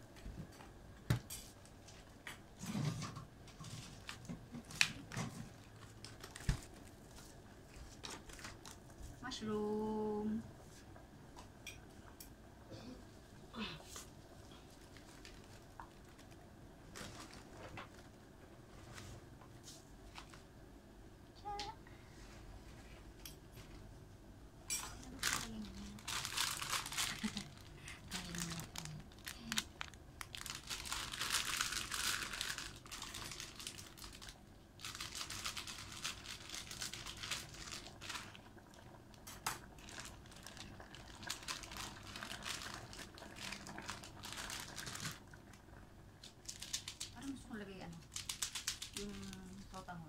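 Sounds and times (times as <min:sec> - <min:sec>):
plastic packaging crinkling: 0:01.8 - 0:08.9, 0:14.5 - 0:18.3, 0:24.9 - 0:49.8.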